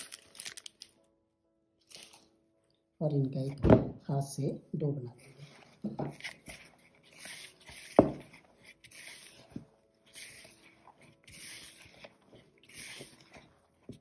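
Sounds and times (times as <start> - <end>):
hand squishing cookie dough: 5.2 - 14.0.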